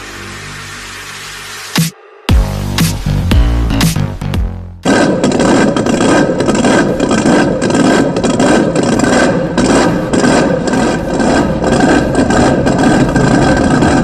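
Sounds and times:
music: 0.1 - 4.8
rough engine idling: 2.3 - 14.0.

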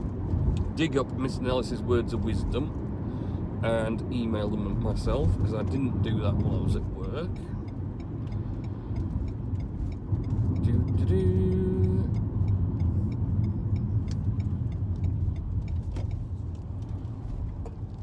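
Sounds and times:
engine and tyre rumble: 0.0 - 18.0
faint rapid ticking: 4.3 - 17.0.

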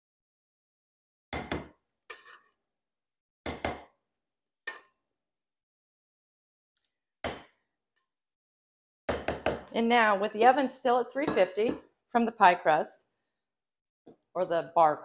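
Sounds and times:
spatula scraping metal bowl: 2.1 - 2.5.

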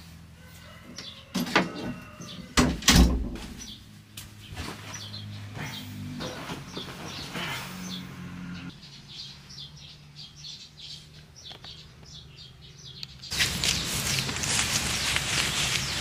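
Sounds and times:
outdoor noise rushing: 2.6 - 16.0
small birds chirping: 3.5 - 16.0.

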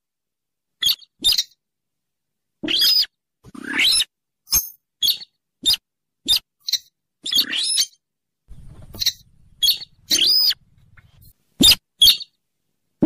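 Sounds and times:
faint low rumble: 8.5 - 11.3
rail bird calling: 8.5 - 11.3.

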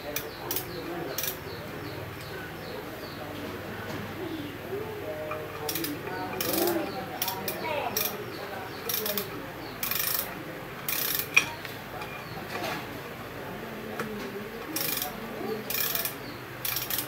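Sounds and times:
ratchet wrench clicking: 0.2 - 1.4, 5.5 - 8.2, 8.8 - 11.5, 14.7 - 15.1, 15.7 - 17.0.

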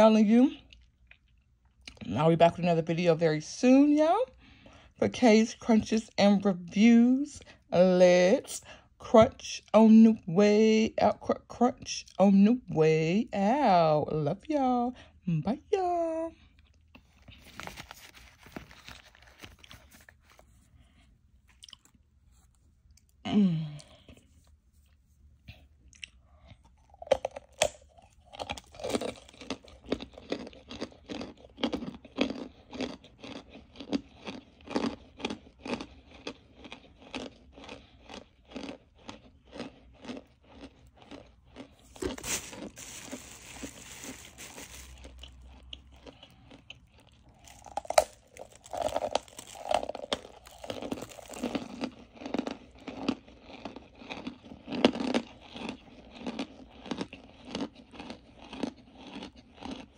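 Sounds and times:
person chewing brittle chunks: 16.5 - 59.9
rustling: 41.8 - 45.2.

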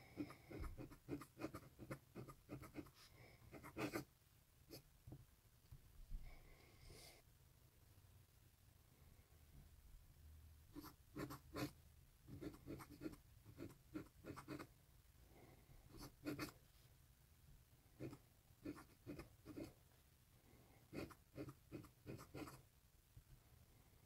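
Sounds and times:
pen nib scratching on paper: 0.1 - 4.1, 10.8 - 14.7, 15.9 - 16.6, 18.0 - 19.7, 20.9 - 22.6.

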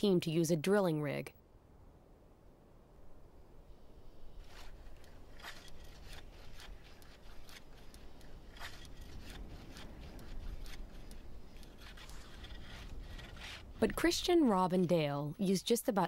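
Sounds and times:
scraping and crunching on ice: 4.4 - 14.3.

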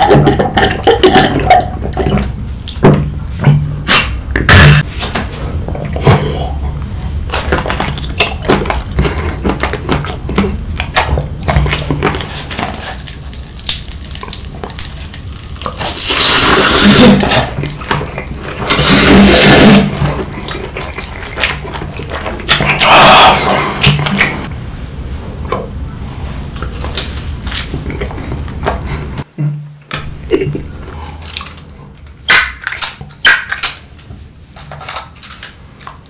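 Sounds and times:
wet chewing: 7.1 - 24.5, 26.5 - 29.2
loud noodle slurps: 15.7 - 24.4.

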